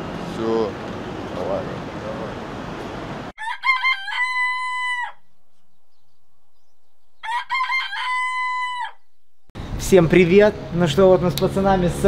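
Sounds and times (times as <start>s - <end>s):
rooster crowing: 3.4s - 5.4s, 7.2s - 9.1s.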